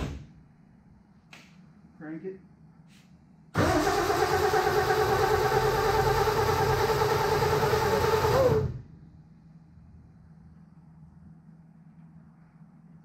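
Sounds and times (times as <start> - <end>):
starter motor cranking engine: 3.6 - 8.8.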